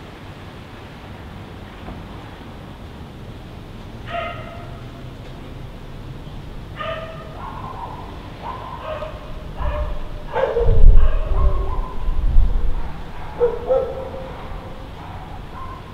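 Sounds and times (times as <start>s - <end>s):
dog barking: 4.1s - 4.8s, 6.8s - 15.9s
low rumble: 9.4s - 15.0s.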